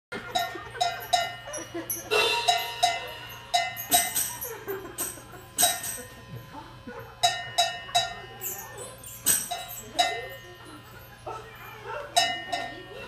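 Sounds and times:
metal drum kit clanking hits: 0:02.0 - 0:04.6.

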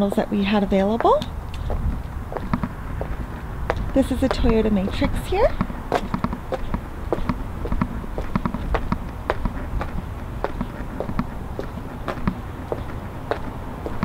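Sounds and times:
hard-soled footsteps on pavement: 0:00.0 - 0:14.0
low steady rumble: 0:00.0 - 0:14.0.

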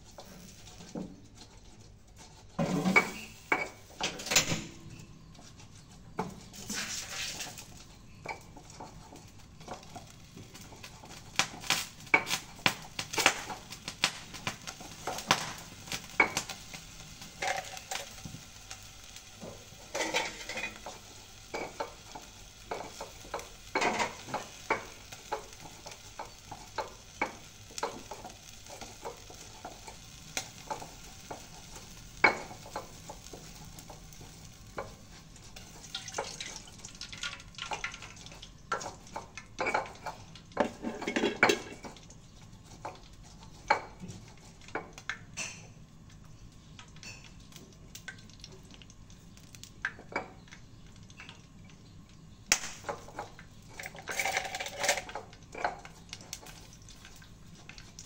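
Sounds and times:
spatula scraping frying pan: 0:00.0 - 0:03.9, 0:04.9 - 0:13.7, 0:14.7 - 0:36.2, 0:38.3 - 0:44.6
low sizzle: 0:00.0 - 0:58.0.

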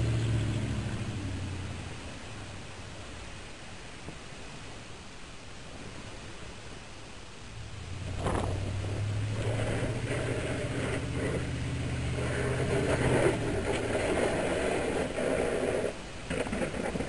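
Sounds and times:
plow scraping snow: 0:00.0 - 0:02.6, 0:07.7 - 0:17.0
truck engine hum: 0:00.0 - 0:03.5, 0:07.5 - 0:16.1.

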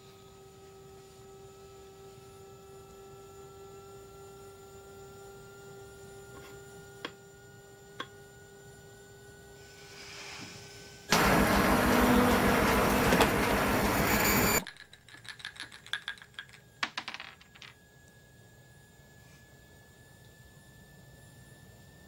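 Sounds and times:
washing machine running: 0:11.1 - 0:14.7
die clattering across a tabletop: 0:15.0 - 0:17.8.

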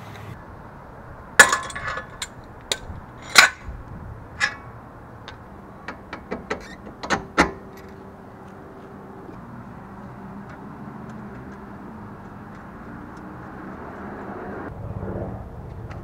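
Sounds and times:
tools and metal parts clinking: 0:01.4 - 0:03.7, 0:04.4 - 0:04.7.

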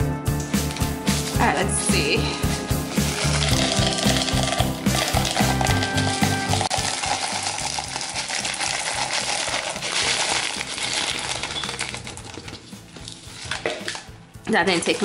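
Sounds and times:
clay pebbles rattling into pot: 0:02.9 - 0:15.0.

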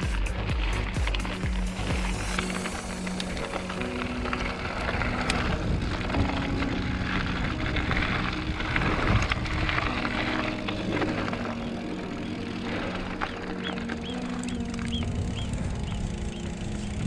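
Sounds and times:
bike rattling over bumps: 0:00.0 - 0:17.0
tyres crunching over gravel: 0:00.0 - 0:17.0
wind on microphone: 0:04.6 - 0:11.5, 0:14.6 - 0:17.0.

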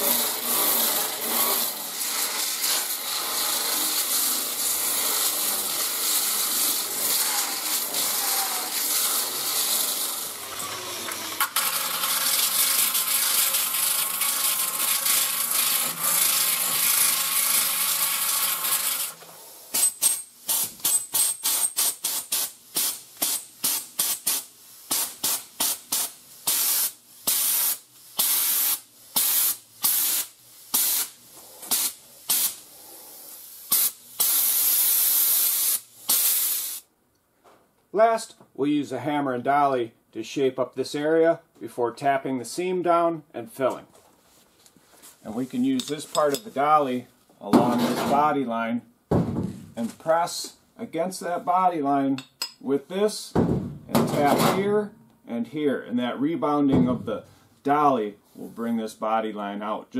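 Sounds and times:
disc sander grinding metal: 0:00.0 - 0:19.1
sand blaster bursts: 0:00.0 - 0:32.6, 0:33.7 - 0:36.9.

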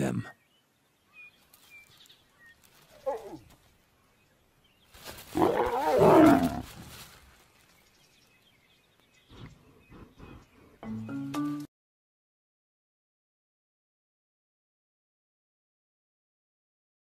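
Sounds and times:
lion snarling: 0:05.3 - 0:06.8.

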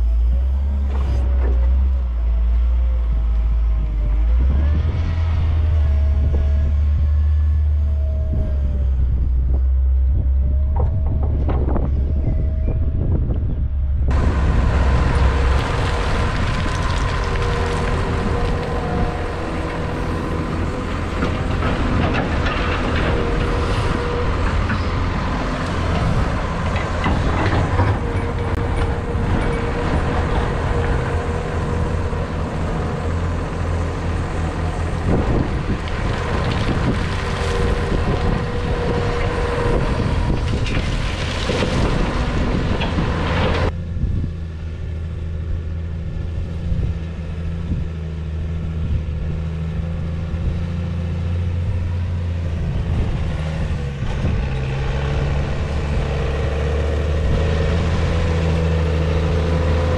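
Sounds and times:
excavator engine and hydraulics: 0:00.0 - 0:59.9
tractor engine: 0:00.0 - 0:59.9
earth and stone rattling into trailer: 0:14.1 - 0:30.8.

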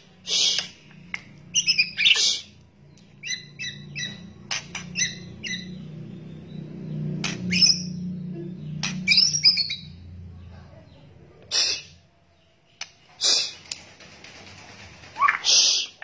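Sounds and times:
faint low hum: 0:00.0 - 0:15.2
bird harsh crackling calls: 0:00.2 - 0:05.9, 0:11.5 - 0:12.1, 0:12.8 - 0:16.0.

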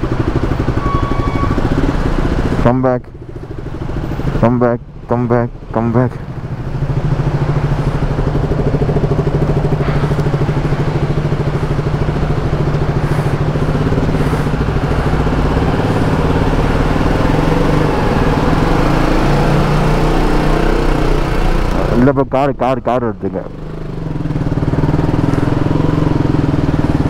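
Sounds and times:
motorcycle engine running: 0:00.0 - 0:27.0.

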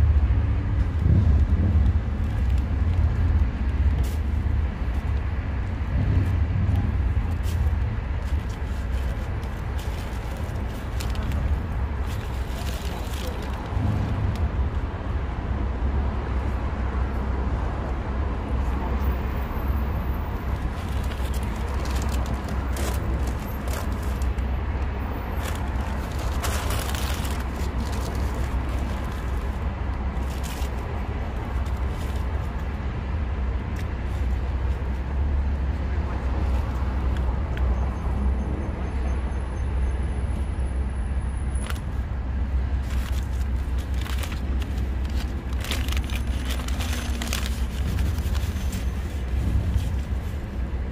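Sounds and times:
street traffic rumble: 0:00.0 - 0:50.9
foil and paper bag crinkling: 0:08.2 - 0:13.9, 0:20.3 - 0:32.5, 0:42.8 - 0:50.3.

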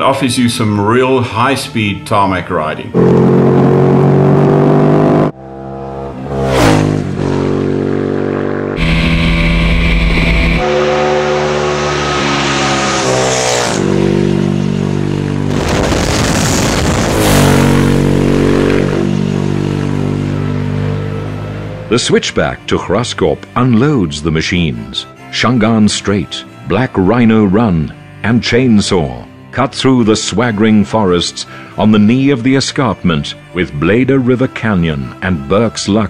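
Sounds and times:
motorcycle engine revving high: 0:02.9 - 0:22.2
motorcycles passing by: 0:10.4 - 0:23.1.

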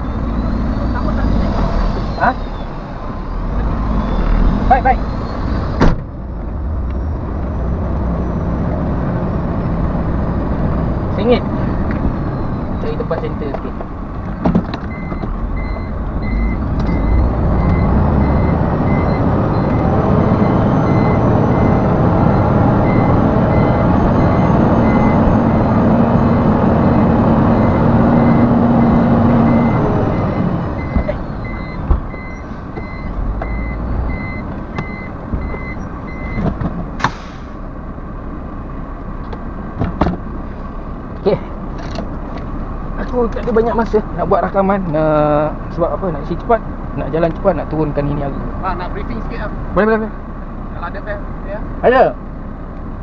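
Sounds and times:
diesel engine running under load: 0:00.0 - 0:53.0
reversing alarm beeping: 0:14.9 - 0:36.4
short sharp air hiss: 0:37.0 - 0:37.6.

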